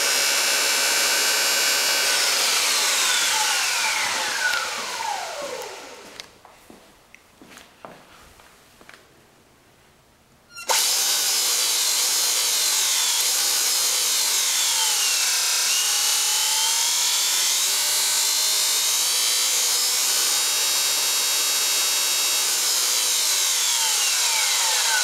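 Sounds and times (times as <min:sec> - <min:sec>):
electric motor whining: 0:00.0 - 0:06.2, 0:10.7 - 0:20.4, 0:22.5 - 0:25.0.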